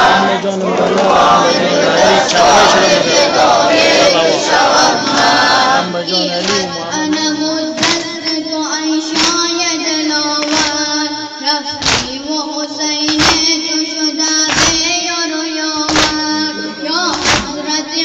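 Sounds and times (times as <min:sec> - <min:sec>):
person singing a lament: 0:04.0 - 0:10.5, 0:11.1 - 0:18.0
hands striking chests: 0:06.4 - 0:08.2, 0:11.7 - 0:12.2, 0:17.1 - 0:17.6.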